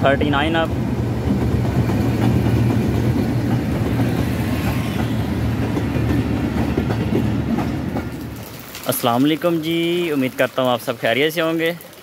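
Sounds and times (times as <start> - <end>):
train engine drone: 0.0 - 8.4
train coaches rumbling: 0.0 - 9.8
wheels clicking over rail joints: 1.3 - 10.9.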